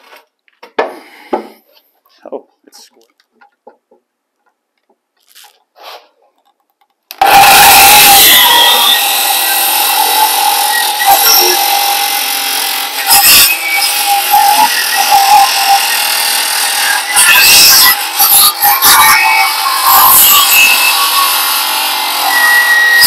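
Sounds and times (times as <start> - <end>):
power saw cutting wood: 7.1 - 23.0.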